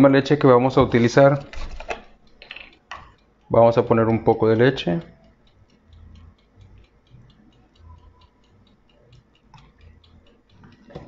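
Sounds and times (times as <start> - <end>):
kitchen timer ticking: 0.0 - 11.0.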